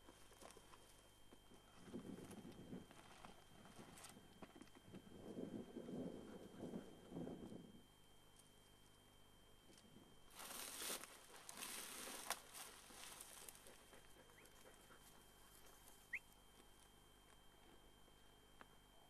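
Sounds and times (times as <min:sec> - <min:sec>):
dry grass rustling: 0:09.7 - 0:14.6.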